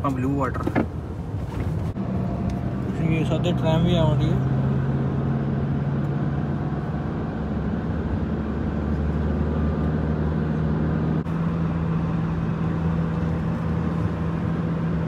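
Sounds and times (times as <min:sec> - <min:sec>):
vehicle engine and road drone: 0:00.0 - 0:15.0.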